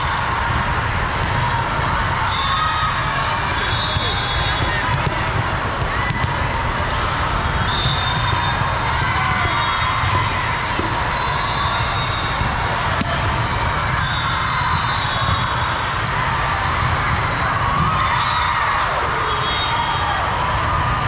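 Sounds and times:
murmur of crowd: 0.0s - 21.0s
volleyballs hit and bouncing: 3.4s - 18.2s.

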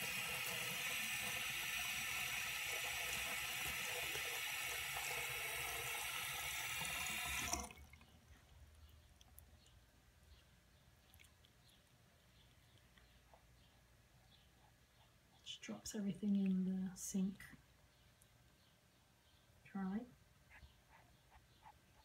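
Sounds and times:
faucet running into sink: 0.0s - 7.9s.

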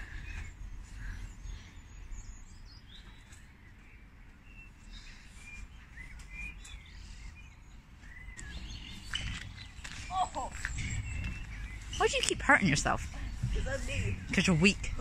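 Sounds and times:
small birds chirping: 0.0s - 15.0s
low background rumble: 10.5s - 15.0s.

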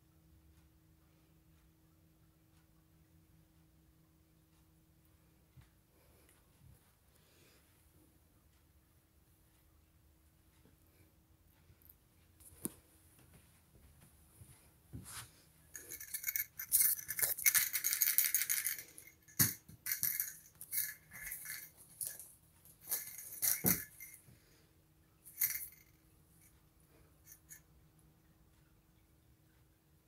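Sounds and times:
rattle ball toy rattling: 15.7s - 24.3s, 25.2s - 26.5s, 27.2s - 27.6s.

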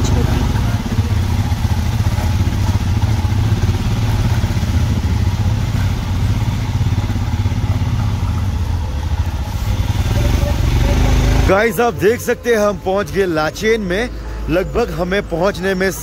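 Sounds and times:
motorcycle engine droning: 0.0s - 16.0s.

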